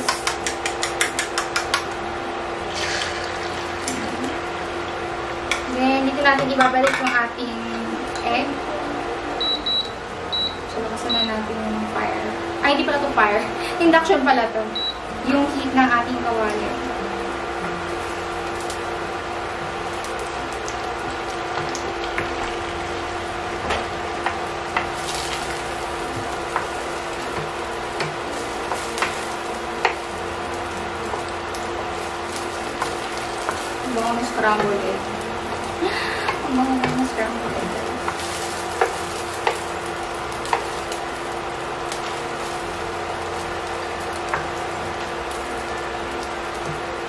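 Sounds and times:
eggs sizzling in a frying pan: 0:00.0 - 0:08.6, 0:09.4 - 0:47.0
steady hum: 0:00.0 - 0:47.0
spatula clicking against pan: 0:00.1 - 0:02.0
spatula tapping a pan: 0:00.1 - 0:02.0, 0:36.3 - 0:39.7, 0:40.4 - 0:40.8.

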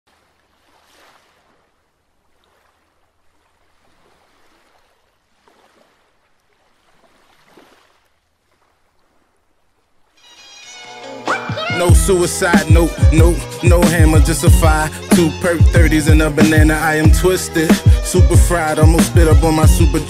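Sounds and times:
waves washing onto beach: 0:00.1 - 0:10.2.

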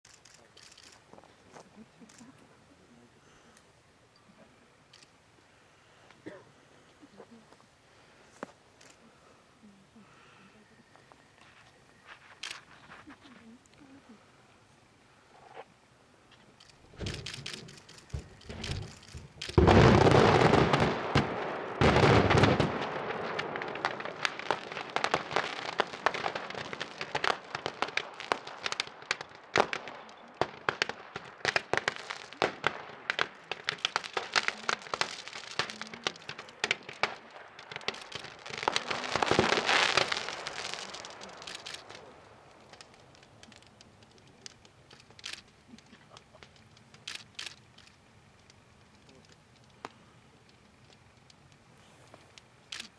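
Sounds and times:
sharp cracks and pops: 0:00.0 - 0:02.4, 0:04.9 - 0:05.2, 0:08.3 - 0:09.2, 0:11.0 - 0:13.8, 0:15.4 - 0:52.9
fireworks bangs: 0:16.7 - 0:47.8.

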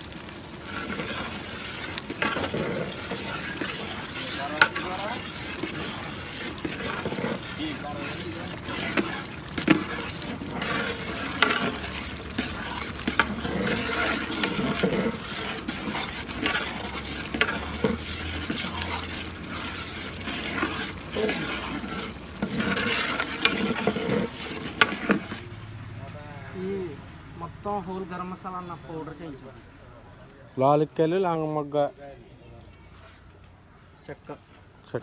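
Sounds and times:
curry bubbling and sizzling: 0:00.0 - 0:29.4
ladle scraping pot: 0:00.2 - 0:25.6.

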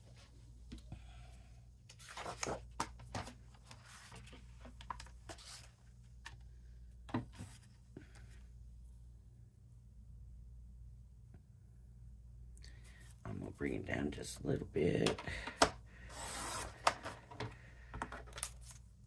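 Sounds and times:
paper rustling and sliding: 0:01.9 - 0:04.4, 0:05.3 - 0:05.8.

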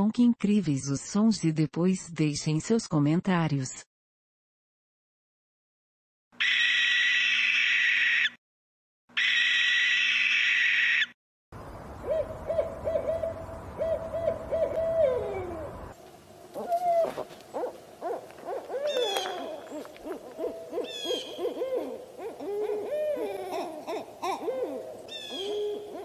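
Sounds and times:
owl hooting: 0:06.4 - 0:08.4, 0:09.2 - 0:11.1, 0:12.0 - 0:26.0.

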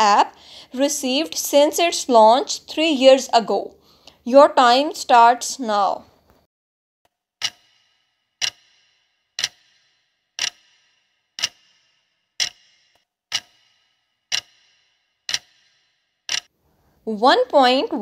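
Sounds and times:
clock ticks with short ring: 0:07.4 - 0:16.5.

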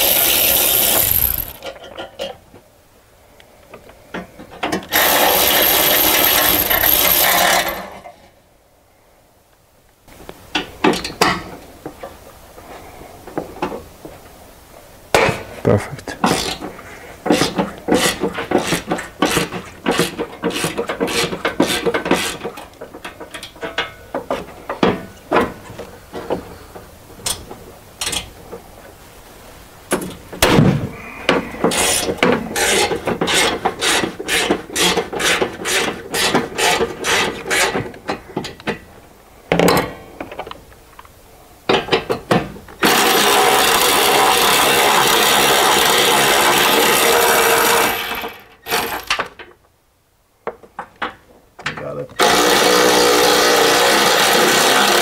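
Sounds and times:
loud mechanical whirring: 0:00.0 - 0:01.6.

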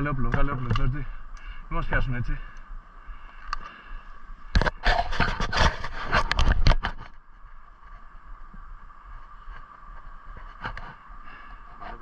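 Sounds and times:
branches scraping microphone: 0:04.4 - 0:12.0.

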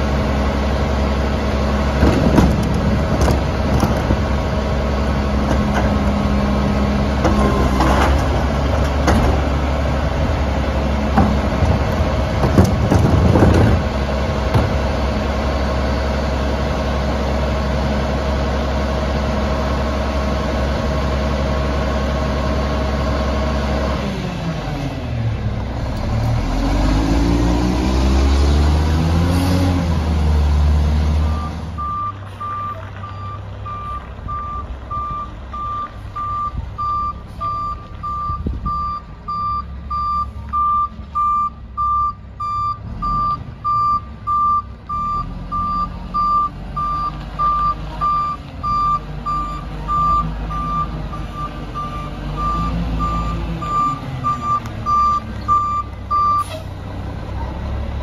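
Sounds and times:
diesel truck engine revving: 0:00.0 - 0:58.0
reverse alarm beeping: 0:31.3 - 0:56.4.

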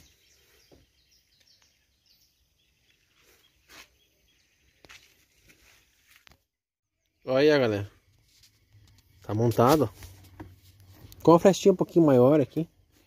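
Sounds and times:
faint bird chirps: 0:00.0 - 0:06.0.

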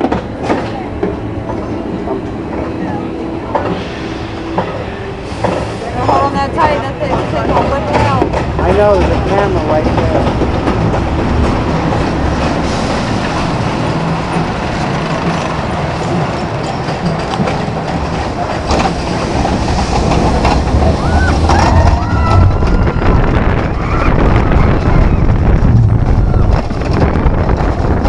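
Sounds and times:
roller coaster wheels rumbling on rail: 0:00.0 - 0:28.0
wind rushing: 0:18.0 - 0:28.0
riders screaming: 0:20.9 - 0:25.4.

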